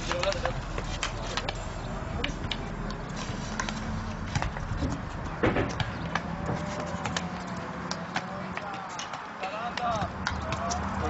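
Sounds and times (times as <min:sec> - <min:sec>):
hockey sticks hitting balls: 0:00.0 - 0:11.0.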